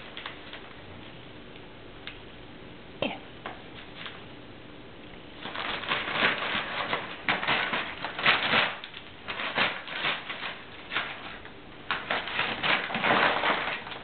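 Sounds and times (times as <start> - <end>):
paper crinkling and rustling: 0.0 - 0.8, 5.4 - 14.0.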